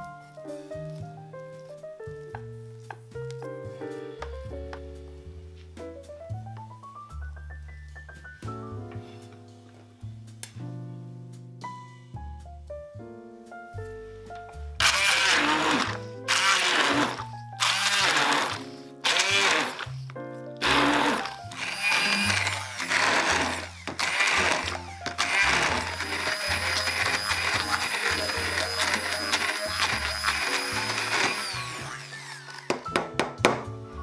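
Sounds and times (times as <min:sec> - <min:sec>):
background music with bass: 0:00.0 - 0:19.1, 0:33.0 - 0:34.0
immersion blender whine: 0:14.8 - 0:20.0, 0:20.6 - 0:32.8.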